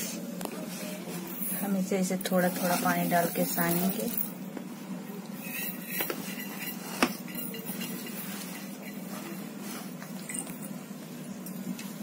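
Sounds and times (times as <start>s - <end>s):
steady low hum: 0.0s - 12.0s
bangles clinking: 3.2s - 4.4s, 5.4s - 10.8s.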